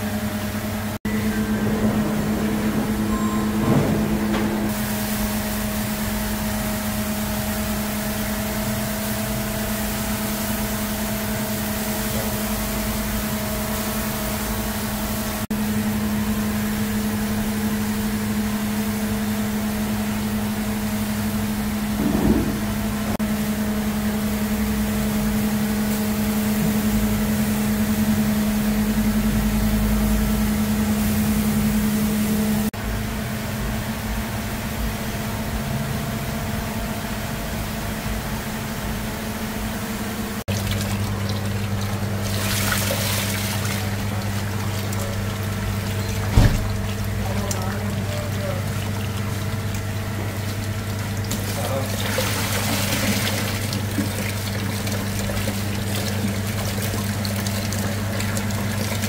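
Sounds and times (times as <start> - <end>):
kitchen equipment hum and hiss: 0.0 - 59.0
pots boiling: 40.4 - 59.0.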